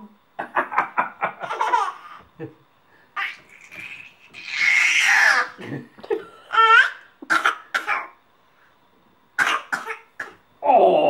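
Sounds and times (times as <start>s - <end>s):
baby squealing: 3.2s - 5.6s.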